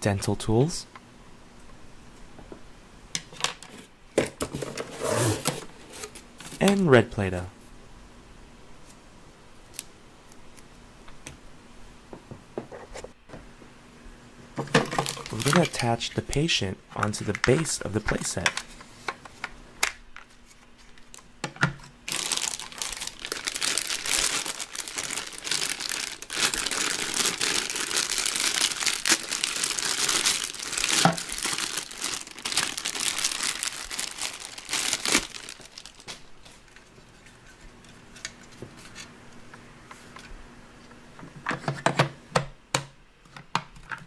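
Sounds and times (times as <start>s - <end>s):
plastic bag crinkling: 14.6s - 16.0s, 22.0s - 36.8s.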